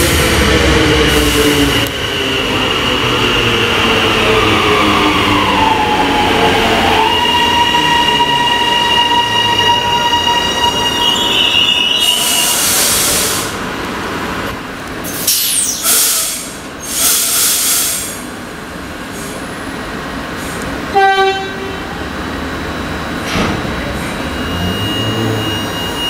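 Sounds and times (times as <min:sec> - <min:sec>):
train brake squeal: 0:07.0 - 0:13.6, 0:15.1 - 0:18.2, 0:23.3 - 0:26.0
air brake hissing: 0:12.0 - 0:13.6, 0:15.1 - 0:18.4.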